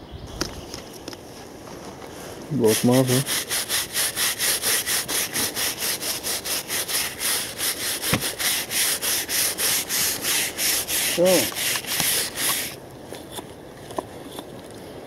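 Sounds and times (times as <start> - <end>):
gloved hand rubbing rusty metal: 2.6 - 12.8.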